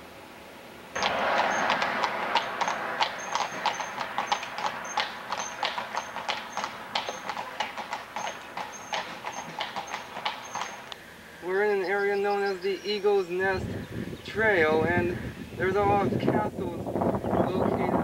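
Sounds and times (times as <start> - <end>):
horse hooves on paved road: 1.0 - 11.0.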